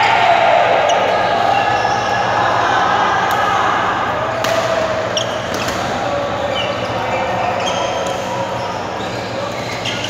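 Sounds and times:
voices echoing in hall: 0.0s - 10.0s
racket hitting shuttlecock: 4.4s - 4.9s
shoes squeaking on floor: 6.5s - 10.0s.

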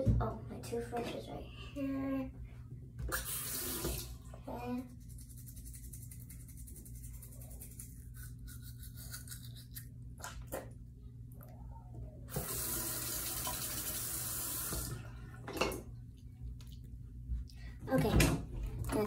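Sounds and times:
tap water running into sink: 3.1s - 4.1s, 12.3s - 15.0s.

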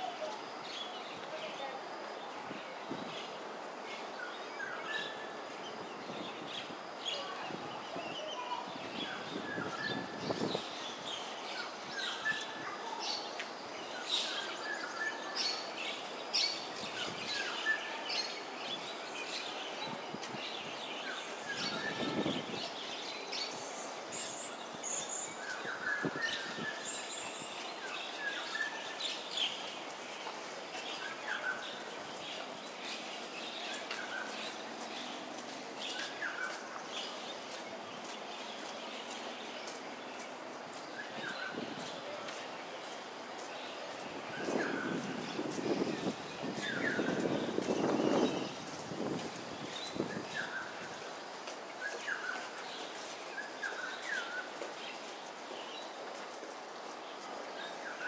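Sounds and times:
steady high-pitched hiss: 0.0s - 58.0s
birds chirping and calling: 40.8s - 51.1s.

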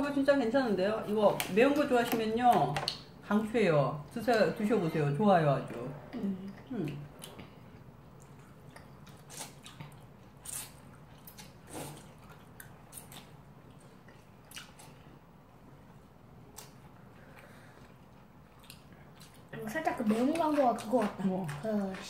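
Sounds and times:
noodles slurped and chewed: 6.4s - 15.1s, 16.5s - 22.0s.

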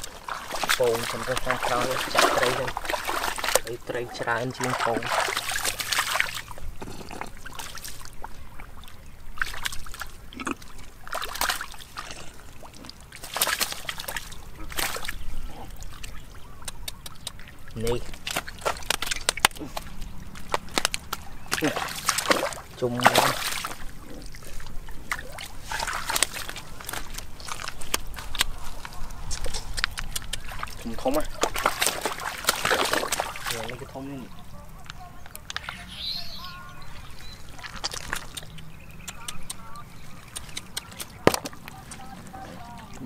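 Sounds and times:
hands squelching through wet mud: 0.0s - 43.0s
muddy water sloshing and splashing: 0.0s - 43.0s.

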